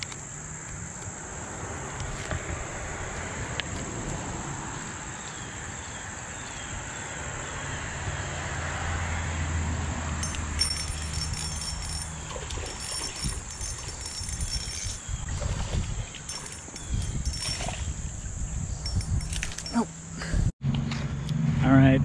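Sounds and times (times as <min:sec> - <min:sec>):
insects buzzing: 0:10.1 - 0:20.3.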